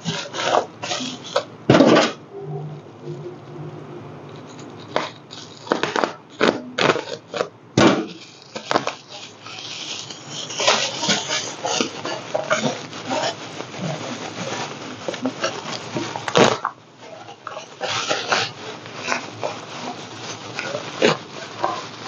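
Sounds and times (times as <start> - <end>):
bubble wrap crinkling: 4.3 - 7.5, 8.1 - 22.0.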